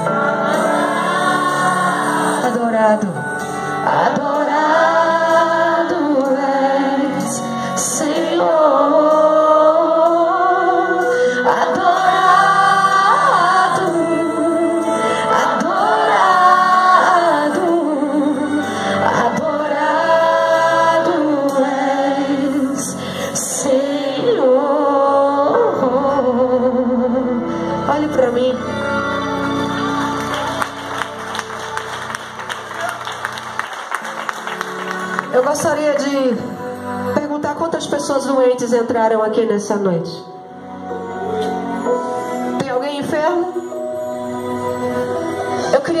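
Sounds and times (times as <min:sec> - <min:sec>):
woman singing into microphone: 0:00.0 - 0:28.6
instrumental accompaniment: 0:27.0 - 0:38.3.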